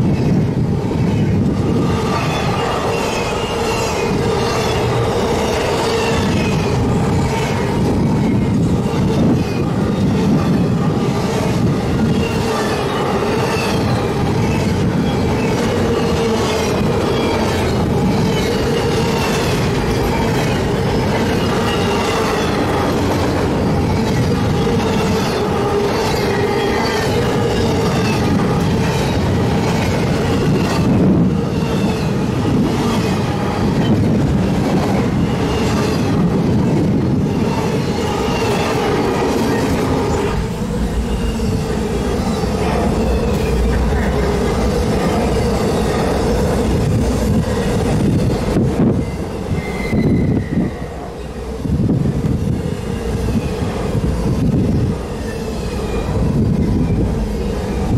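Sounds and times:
train wheels rumbling on rail: 0.0s - 57.9s
wheel squeal: 20.4s - 22.8s, 48.9s - 51.1s.

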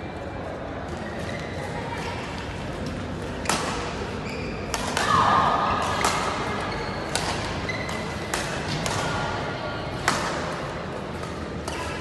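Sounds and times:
rackets striking shuttlecock: 4.7s - 9.3s, 10.0s - 12.0s.

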